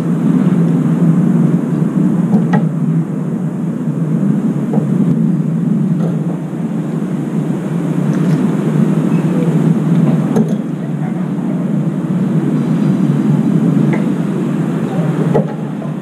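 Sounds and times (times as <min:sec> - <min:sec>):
low urban rumble: 0:00.0 - 0:16.0.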